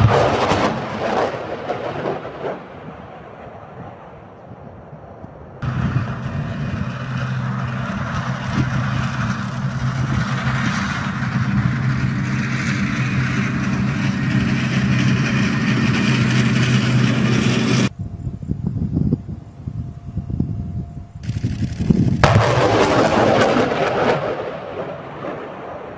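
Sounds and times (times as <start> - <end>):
diesel engine droning: 5.6 - 17.9.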